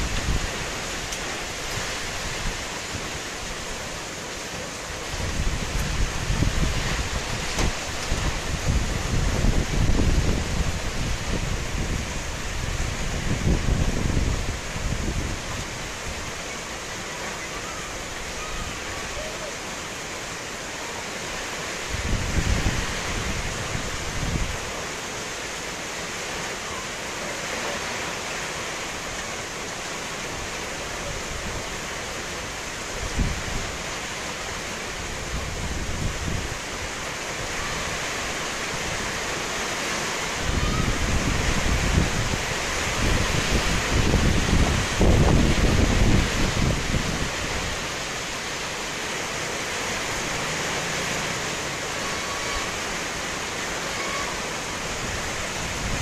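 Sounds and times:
steady rain falling: 0:00.0 - 0:56.0
wind buffeting microphone: 0:05.0 - 0:16.4, 0:21.9 - 0:24.7, 0:40.4 - 0:47.9, 0:54.9 - 0:56.0.

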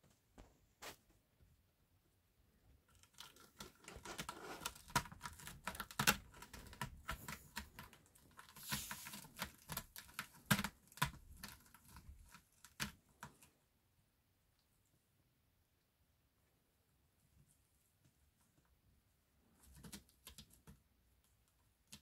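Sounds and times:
kitten claws scratching: 0:02.9 - 0:13.6, 0:19.5 - 0:22.0.

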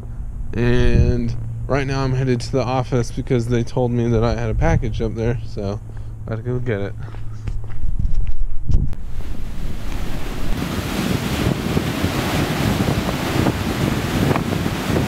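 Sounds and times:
ocean waves washing onto beach: 0:09.0 - 0:15.0.

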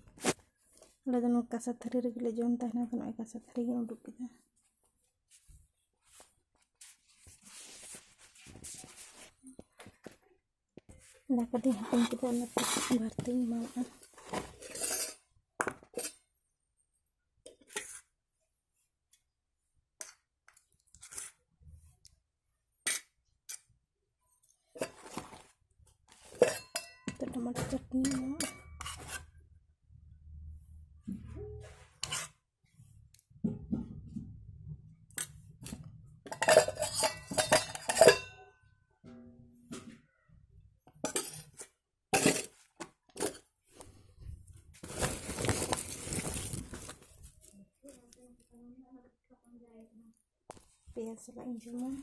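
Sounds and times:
steel bowls and utensils clinking: 0:11.6 - 0:16.3, 0:24.7 - 0:25.5, 0:26.1 - 0:29.3, 0:36.2 - 0:38.7, 0:40.9 - 0:43.5
utensils clattering: 0:14.0 - 0:15.2, 0:36.3 - 0:38.3.

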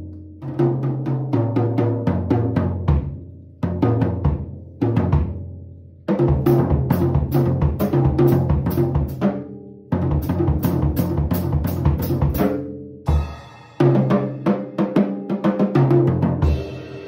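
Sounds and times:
drum kit playing: 0:06.1 - 0:17.0.

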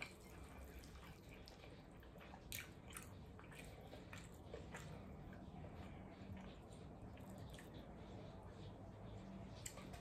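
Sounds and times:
wet chewing and smacking: 0:00.0 - 0:10.0.

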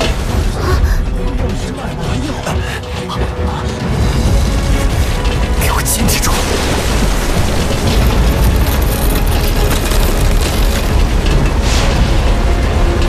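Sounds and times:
background music: 0:00.0 - 0:13.0
deep magical rumble: 0:00.0 - 0:13.0.

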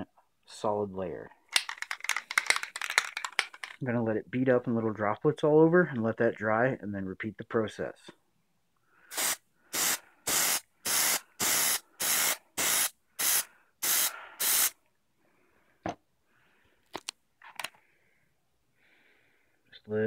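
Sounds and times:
aerosol can spraying bursts: 0:09.1 - 0:14.8.

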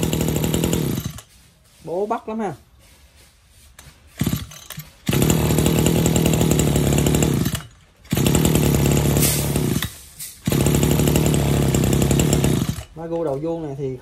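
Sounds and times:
brush cutter engine idling: 0:00.0 - 0:01.3, 0:04.2 - 0:13.4
brush cutter engine revving: 0:00.0 - 0:01.3, 0:04.2 - 0:13.2.

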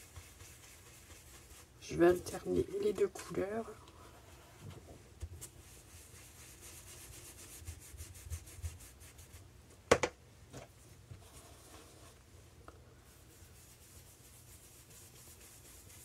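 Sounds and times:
foam tool rubbing on paper: 0:00.0 - 0:03.0, 0:05.4 - 0:09.4, 0:13.1 - 0:16.0.

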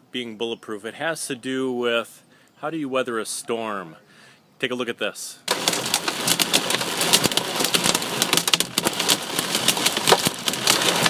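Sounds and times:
hail pelting car windshield: 0:05.5 - 0:11.0.

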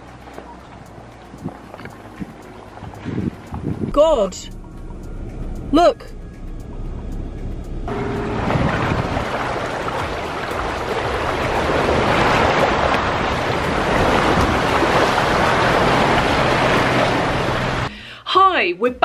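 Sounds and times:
vehicle tyres churning water and mud: 0:00.0 - 0:04.5, 0:07.9 - 0:17.9.

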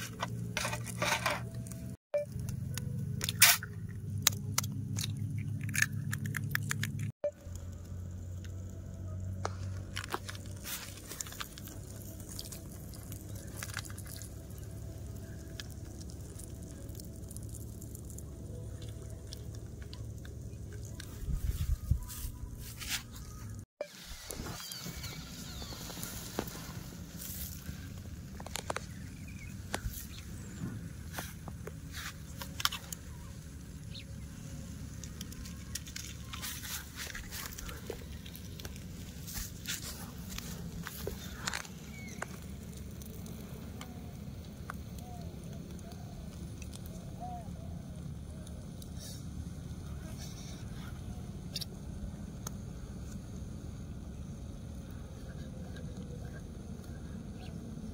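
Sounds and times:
knife scraping foil tray: 0:00.0 - 0:01.5
fire crackling: 0:00.0 - 0:57.9.

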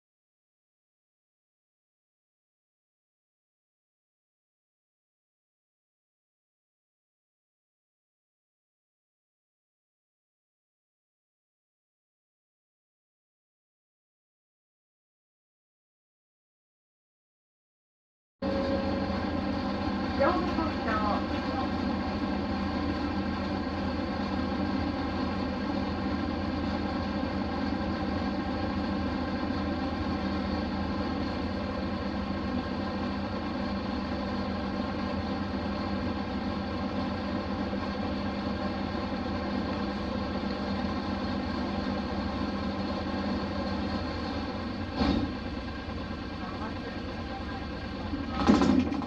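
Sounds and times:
bus engine running: 0:18.4 - 0:49.0.

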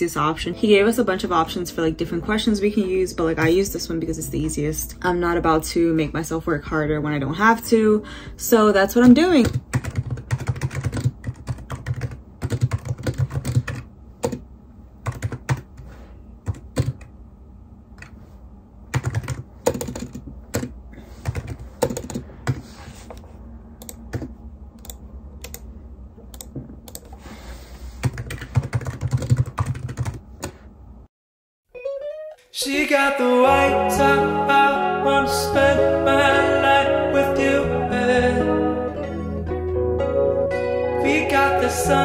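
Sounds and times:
typing on a computer keyboard: 0:09.4 - 0:14.4, 0:15.0 - 0:15.7, 0:16.5 - 0:17.1, 0:18.9 - 0:22.6, 0:23.8 - 0:25.6, 0:26.3 - 0:27.2, 0:28.0 - 0:30.6.

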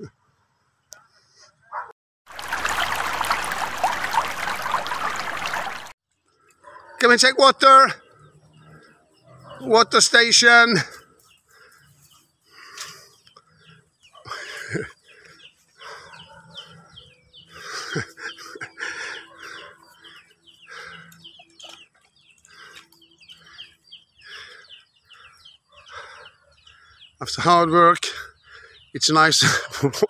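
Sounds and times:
small birds chirping: 0:04.0 - 0:30.0
chickens clucking: 0:14.0 - 0:27.0.

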